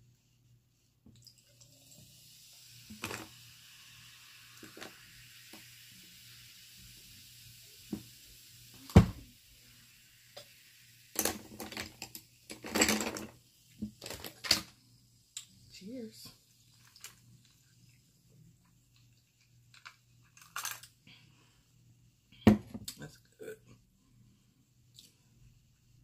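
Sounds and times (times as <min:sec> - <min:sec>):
sparkling water fizzing: 0:01.1 - 0:21.5
glass and ice clattering: 0:11.2 - 0:13.3.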